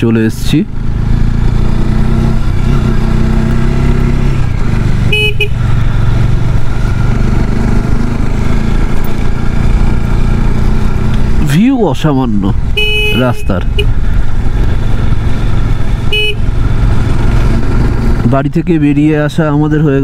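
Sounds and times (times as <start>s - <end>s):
motorcycle engine running: 0.0s - 20.0s
motorcycle horn toot: 5.1s - 5.7s, 12.7s - 14.0s, 16.1s - 16.5s.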